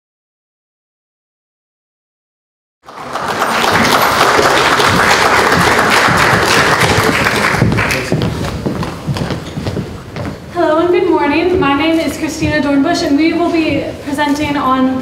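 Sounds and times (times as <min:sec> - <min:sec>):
audience applauding: 0:02.8 - 0:09.0.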